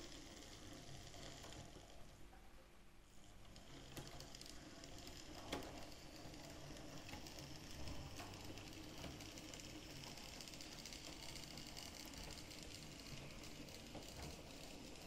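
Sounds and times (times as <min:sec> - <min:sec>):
wheels clicking on track: 0:03.4 - 0:15.0.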